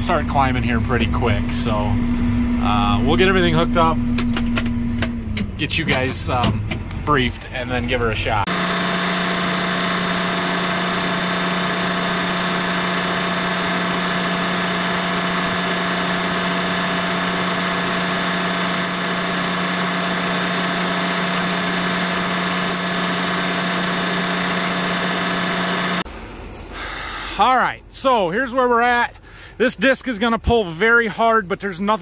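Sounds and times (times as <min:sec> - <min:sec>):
tractor diesel engine idling: 0:00.0 - 0:04.1, 0:08.4 - 0:28.2.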